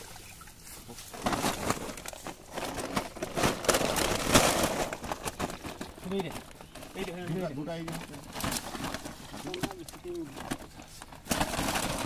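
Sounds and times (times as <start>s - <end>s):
nylon net crinkling: 0.0s - 12.0s
plastic sack rustling: 0.0s - 12.0s
fish splashing and thrashing: 7.9s - 12.0s.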